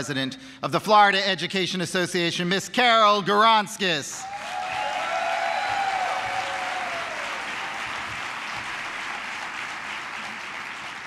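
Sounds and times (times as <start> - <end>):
long held cheer: 4.2 - 8.3
audience applauding: 4.2 - 11.0.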